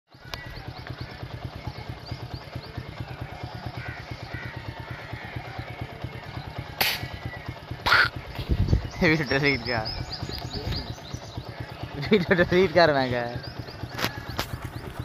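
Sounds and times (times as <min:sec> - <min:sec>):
engine throbbing: 0:00.1 - 0:15.0
air rifle shot: 0:06.8 - 0:07.2.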